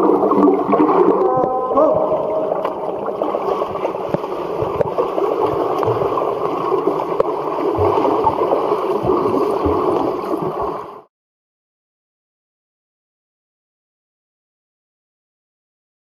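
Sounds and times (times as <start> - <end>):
underwater rushing and gurgling: 0.0 - 11.1.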